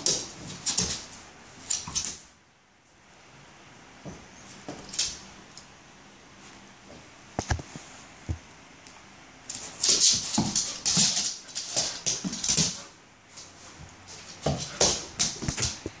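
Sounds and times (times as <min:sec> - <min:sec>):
dog claws scrabbling on wood floor: 0:00.0 - 0:02.2, 0:09.5 - 0:13.5, 0:14.1 - 0:15.9.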